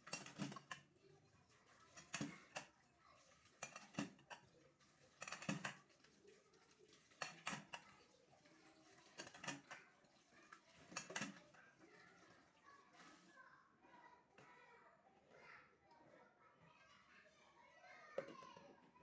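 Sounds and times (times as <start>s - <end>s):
running tap water: 0.0s - 13.4s
plates clattering in sink: 3.5s - 5.9s.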